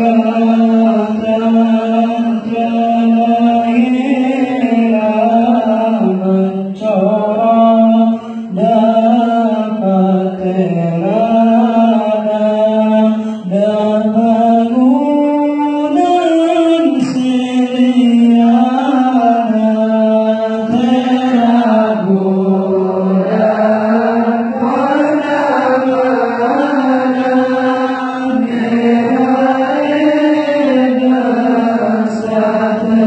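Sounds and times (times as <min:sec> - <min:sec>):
men chanting together: 0:00.0 - 0:15.6, 0:16.6 - 0:33.0.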